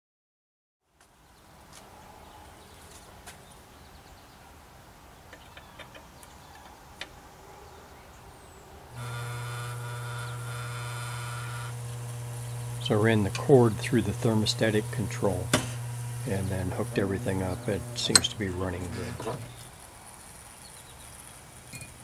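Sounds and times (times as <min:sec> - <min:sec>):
exhaust fan motor humming: 0:08.9 - 0:22.0.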